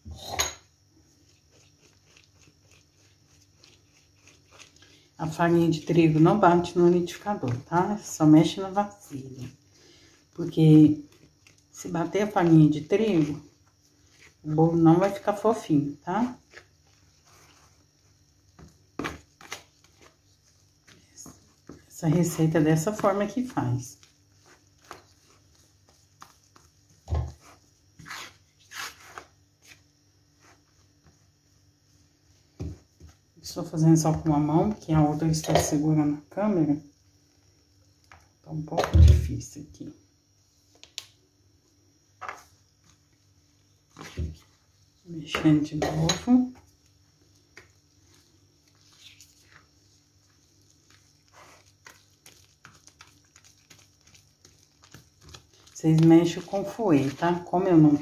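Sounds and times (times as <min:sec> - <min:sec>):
spoon stirring thick batter: 0:00.9 - 0:36.0, 0:42.2 - 0:58.0
spatula scraping plastic bowl: 0:18.5 - 0:29.8.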